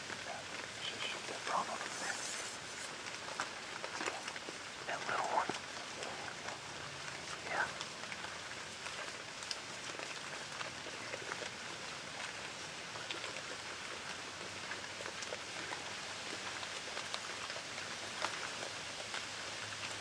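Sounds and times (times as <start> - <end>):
steady hiss: 0.0 - 14.8
hogs crunching feed: 0.0 - 20.0.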